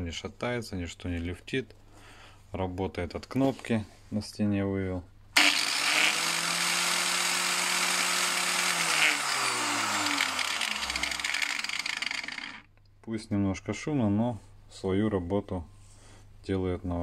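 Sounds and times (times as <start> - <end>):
disc sander whining: 5.4 - 12.6.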